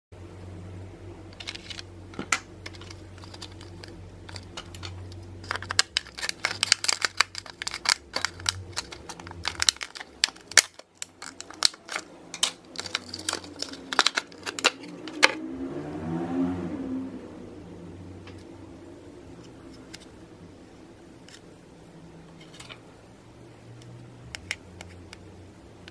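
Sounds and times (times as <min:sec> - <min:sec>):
scissors snipping plastic: 0:01.4 - 0:15.3
plastic crinkling and crackling: 0:01.4 - 0:15.4.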